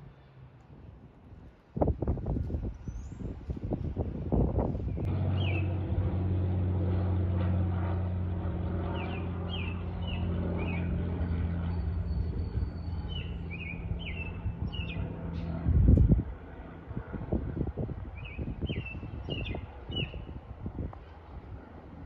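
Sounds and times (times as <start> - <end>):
small airplane drone: 0.0 - 22.0
bird chirping: 4.9 - 5.7, 8.9 - 15.5, 18.2 - 20.3.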